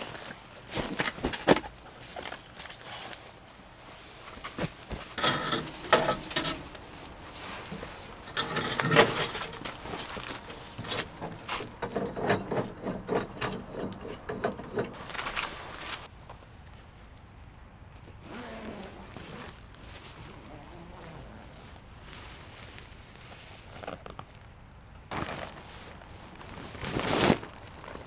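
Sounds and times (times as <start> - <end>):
fabric rustling: 2.0 - 11.8, 14.9 - 16.1, 25.1 - 28.0
bag scraping: 25.1 - 28.0.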